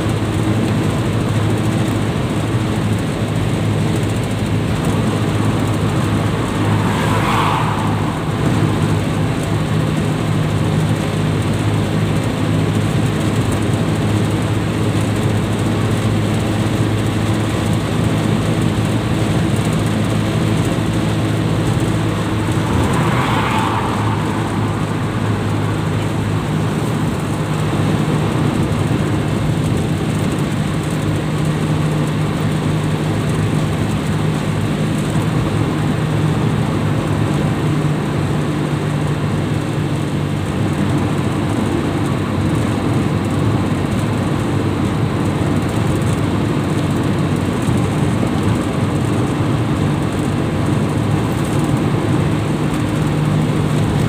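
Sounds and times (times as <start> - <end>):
van engine hum and road noise: 0.0 - 54.0
brief rushing sound: 4.8 - 10.6, 21.1 - 27.8.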